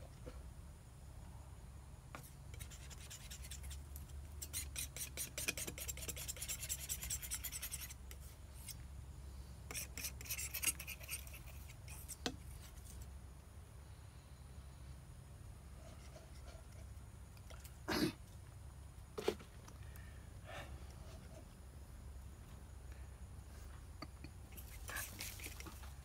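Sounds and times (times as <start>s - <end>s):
painting knife scraping paint: 2.2s - 8.8s, 9.7s - 13.1s, 15.8s - 17.0s, 24.5s - 25.9s.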